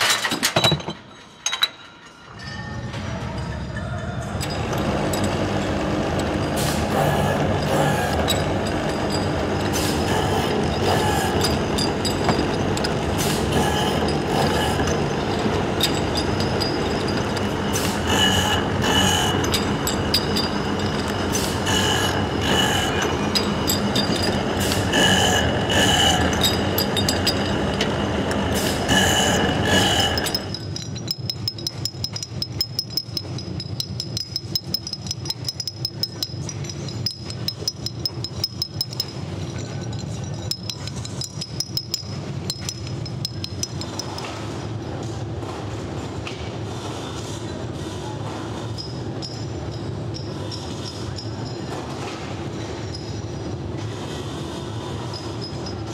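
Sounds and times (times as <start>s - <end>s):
grinding machine running: 4.5s - 39.6s.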